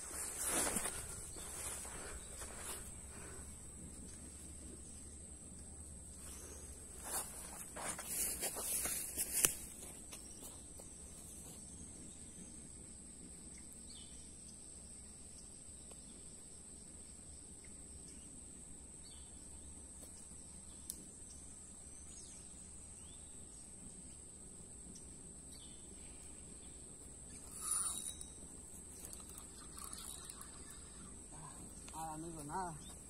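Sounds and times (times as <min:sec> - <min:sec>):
rustle: 0:00.0 - 0:18.4
insects buzzing: 0:00.0 - 0:33.0
faint bird chirps: 0:25.0 - 0:33.0.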